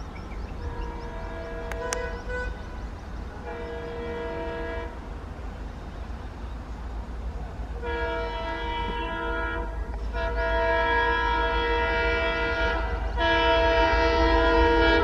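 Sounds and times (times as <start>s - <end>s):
locomotive air horn blasts: 0.7s - 2.6s, 3.4s - 5.0s, 7.8s - 15.0s.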